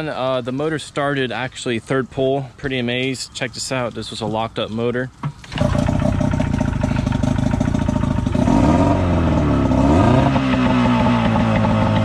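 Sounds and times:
outboard motor running: 0:05.4 - 0:12.0.

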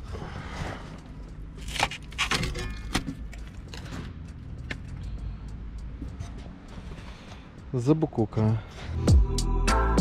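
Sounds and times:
rotten wood cracking: 0:01.5 - 0:03.9.

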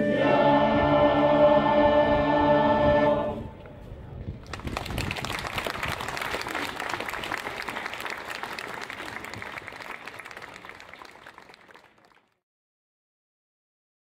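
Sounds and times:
audience applauding: 0:04.4 - 0:12.4.

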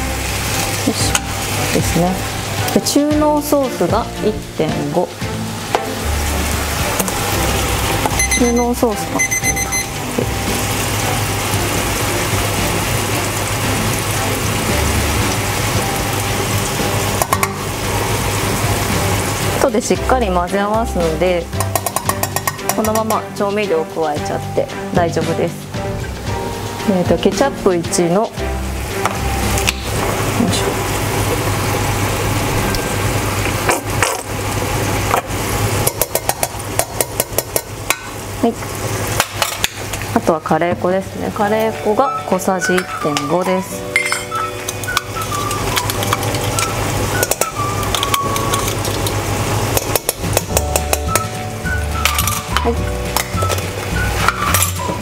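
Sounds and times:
food sizzling in a frying pan: 0:00.0 - 0:55.0
utensil clicking against pan: 0:21.5 - 0:23.3, 0:35.8 - 0:38.1, 0:44.6 - 0:51.3.

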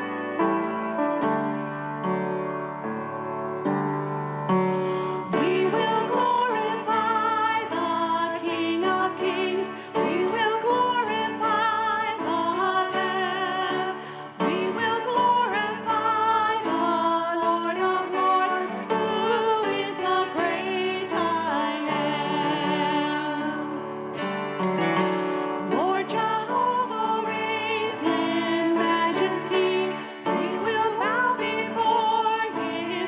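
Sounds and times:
instrumental accompaniment: 0:00.0 - 0:33.0
woman singing a hymn: 0:05.3 - 0:24.0, 0:25.6 - 0:33.0.

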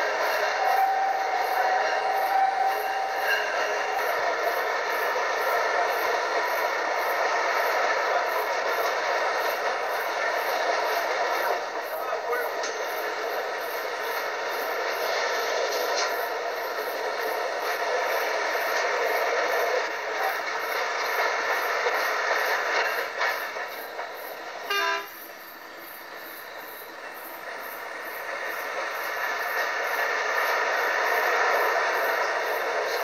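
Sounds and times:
train running on track: 0:00.0 - 0:33.0
train horn toot: 0:00.5 - 0:04.0, 0:24.6 - 0:25.3.

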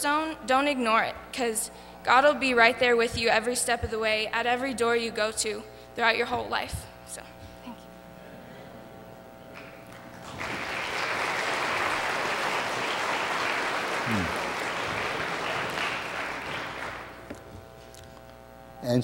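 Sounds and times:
congregation applauding: 0:09.6 - 0:17.4.

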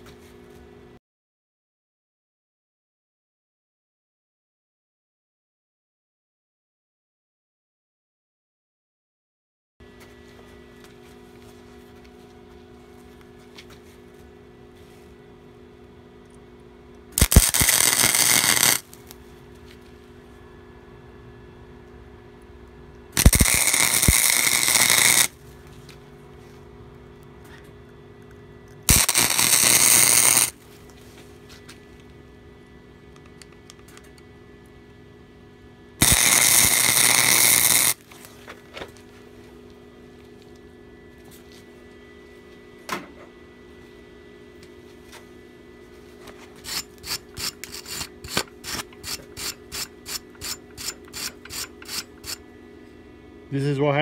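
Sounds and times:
steady hum: 0:09.8 - 0:54.0
wire brush scrubbing metal: 0:17.2 - 0:18.9, 0:23.2 - 0:25.3, 0:46.6 - 0:52.4
electric arc welding crackling: 0:17.2 - 0:19.2, 0:23.2 - 0:25.4, 0:28.9 - 0:30.6, 0:36.0 - 0:38.1.

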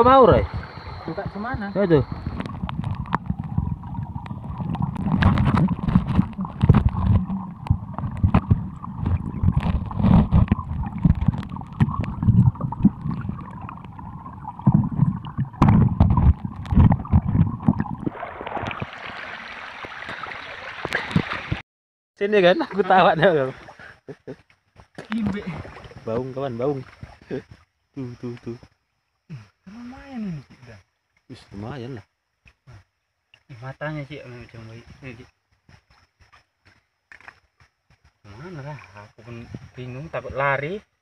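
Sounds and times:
underwater water thuds: 0:00.4 - 0:21.6.

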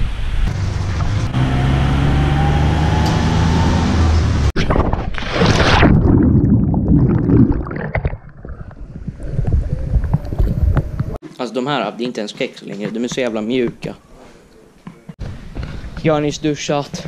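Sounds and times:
rising whine: 0:00.0 - 0:04.5
loud splashing water: 0:05.1 - 0:08.5.

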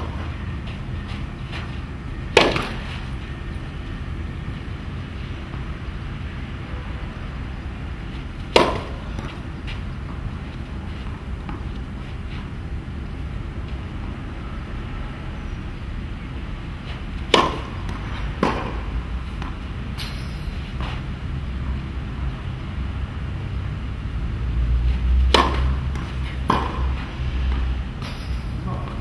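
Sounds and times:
tennis ball hit and bouncing: 0:02.2 - 0:03.0, 0:08.4 - 0:10.2, 0:17.2 - 0:20.2, 0:25.2 - 0:29.0.

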